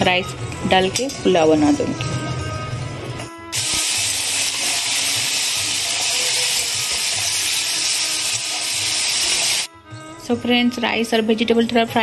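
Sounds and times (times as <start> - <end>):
vegetables sizzling in hot fat: 3.5 - 9.7.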